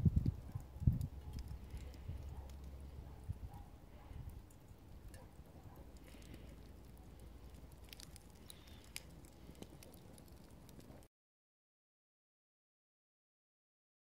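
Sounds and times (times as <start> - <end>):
wood fire crackling and popping: 0.0 - 11.1.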